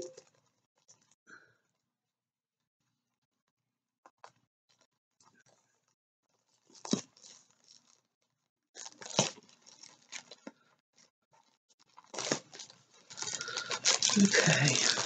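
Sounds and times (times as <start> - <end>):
plastic mailer crinkling: 8.8 - 10.5, 11.4 - 15.0.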